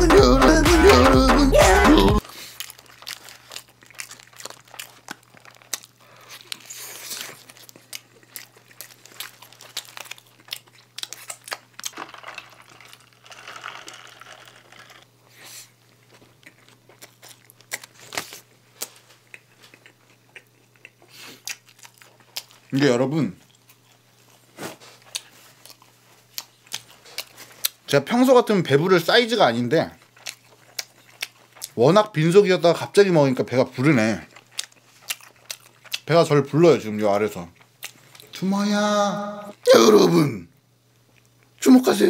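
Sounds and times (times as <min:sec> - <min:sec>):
paper wrapper crinkling: 0:02.2 - 0:15.1
chewing and crunching: 0:02.2 - 0:38.4, 0:40.9 - 0:41.6.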